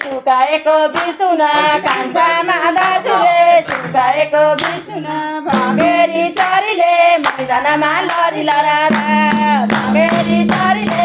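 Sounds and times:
hand clapping: 0.0 - 11.0
people singing folk song: 0.0 - 11.0
hand drum: 5.5 - 11.0.

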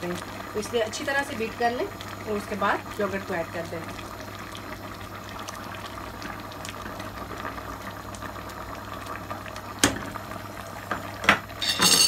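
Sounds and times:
sauce boiling and bubbling: 0.0 - 11.7.

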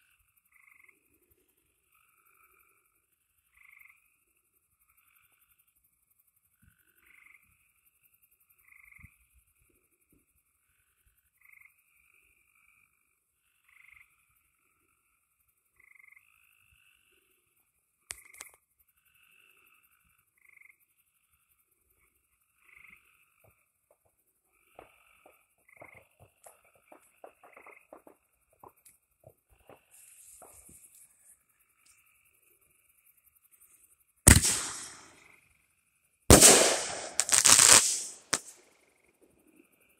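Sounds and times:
frogs calling: 0.3 - 1.3, 1.9 - 5.8, 6.8 - 9.6, 11.3 - 17.3, 18.1 - 31.0.

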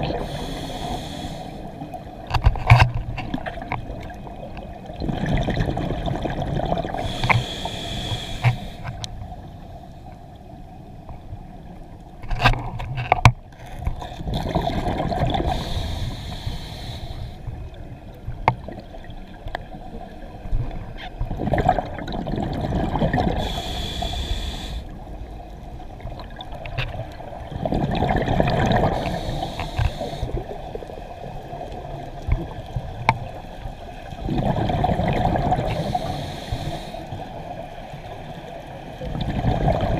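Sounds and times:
exhaled bubbles gurgling: 0.0 - 2.3, 3.2 - 9.0, 13.9 - 17.8, 18.5 - 39.9
regulator inhalation hiss: 0.1 - 1.7, 7.0 - 9.0, 15.5 - 17.5, 23.4 - 25.0, 28.9 - 30.4, 35.7 - 37.2.

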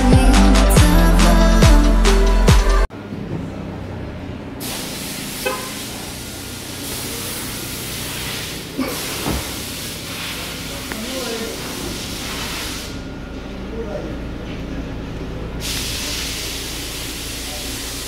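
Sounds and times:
music: 0.0 - 2.9
car engine idling: 2.3 - 18.0
hiss: 4.6 - 13.0, 15.6 - 18.0.

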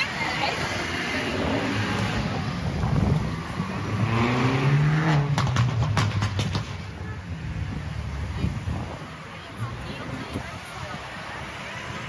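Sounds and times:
street traffic: 0.0 - 12.0
vehicle engine speeding up: 0.5 - 6.7.

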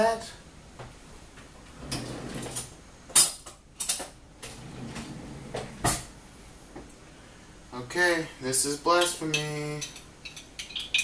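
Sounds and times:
glass and utensils clinking: 9.0 - 11.0.

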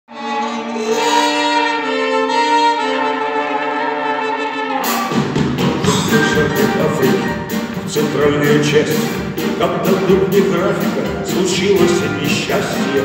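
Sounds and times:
live band playing: 0.1 - 13.0
drums: 4.8 - 13.0.

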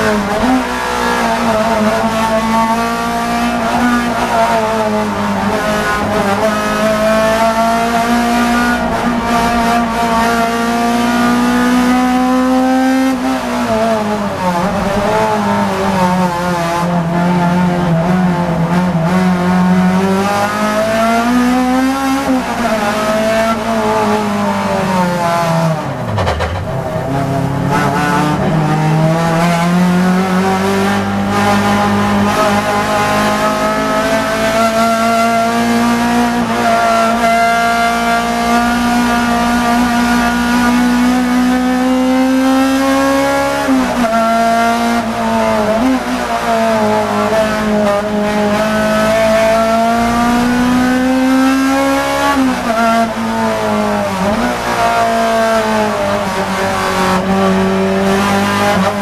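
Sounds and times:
race car engine under load: 0.0 - 59.0.

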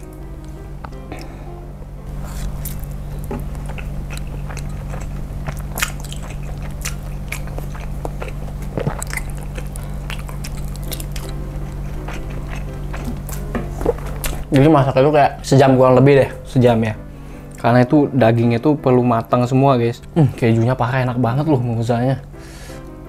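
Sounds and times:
person chewing food: 2.1 - 14.6
wet chewing clicks: 2.3 - 14.7.

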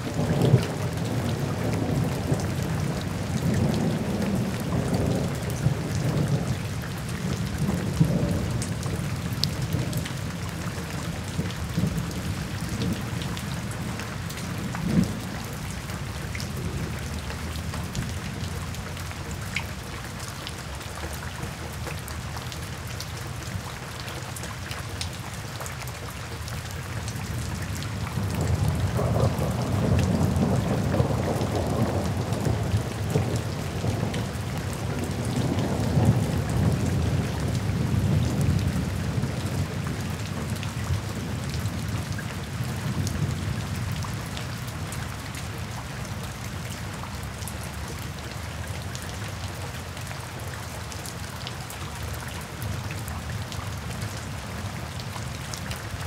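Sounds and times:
heavy rain: 0.0 - 56.0
rolling thunder: 28.1 - 39.8.

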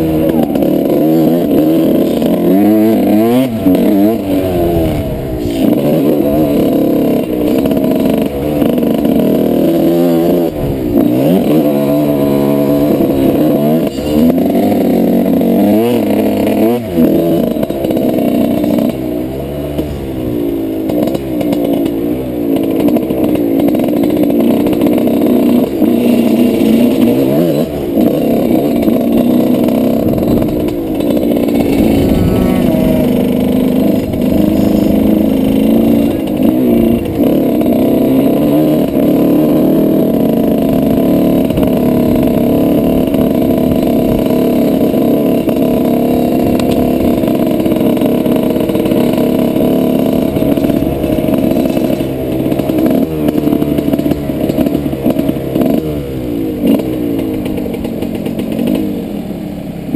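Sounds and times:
dirt bike engine running: 0.0 - 59.9.

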